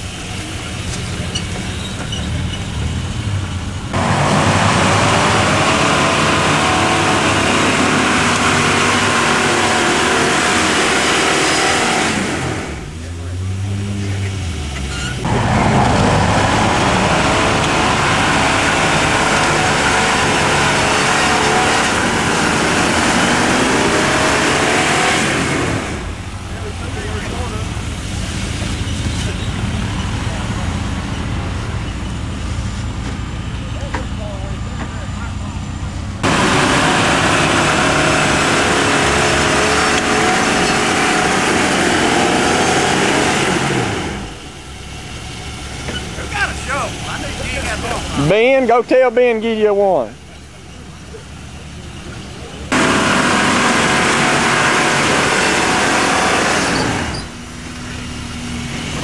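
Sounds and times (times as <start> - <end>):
engine revving under load: 0.0 - 59.0
spinning tyres and flung dirt: 0.0 - 59.0.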